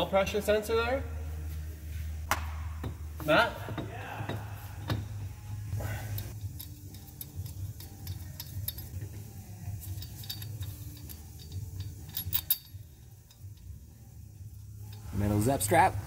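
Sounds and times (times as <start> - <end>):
steady low hum: 0.0 - 16.0
metallic clicks of hand tools: 6.1 - 9.2, 9.8 - 13.7.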